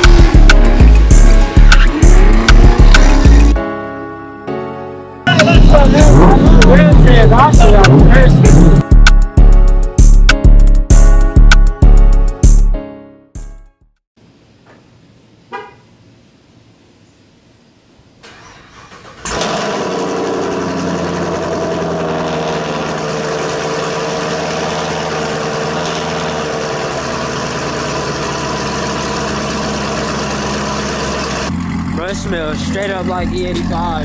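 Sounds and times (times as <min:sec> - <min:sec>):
loud engine idle: 0:19.4 - 0:34.0.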